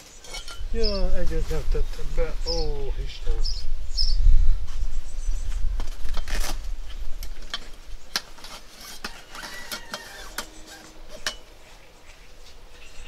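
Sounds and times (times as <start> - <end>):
nylon bag rustling: 5.8 - 11.3.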